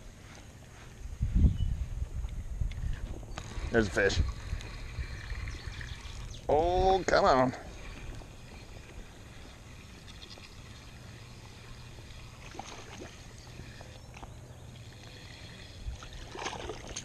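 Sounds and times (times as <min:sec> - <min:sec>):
water lapping and sloshing: 0:07.7 - 0:17.0.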